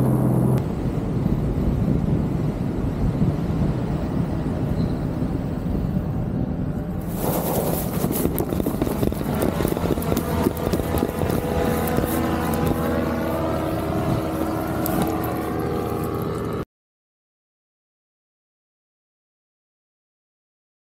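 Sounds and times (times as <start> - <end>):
small aircraft motor running: 0.0 - 2.2, 7.0 - 16.6
wind rushing over microphone: 0.0 - 16.6.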